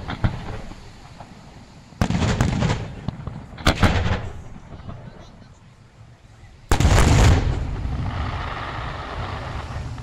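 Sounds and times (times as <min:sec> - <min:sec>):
firework bangs: 0:00.0 - 0:05.4, 0:06.7 - 0:10.0
firework crackles: 0:00.0 - 0:10.0.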